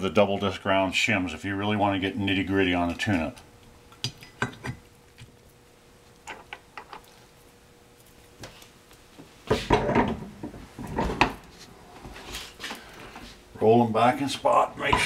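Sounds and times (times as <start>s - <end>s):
metal clunks and rattles: 9.6s - 11.4s.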